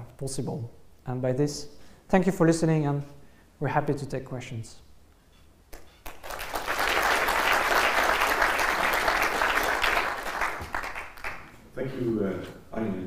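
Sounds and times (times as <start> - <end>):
audience clapping: 5.8 - 11.6.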